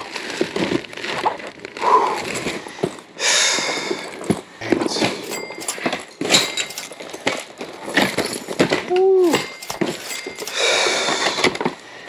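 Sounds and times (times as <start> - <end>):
rustle of handbags: 0.0 - 11.8
items rummaged clicks and knocks: 0.0 - 12.0.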